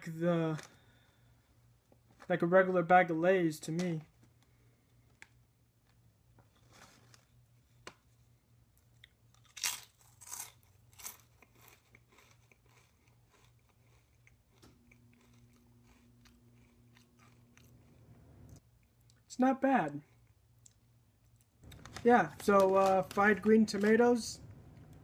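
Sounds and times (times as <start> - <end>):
faint steady hum: 0.0 - 25.0
potato chip crunching: 9.0 - 19.2, 19.8 - 24.3.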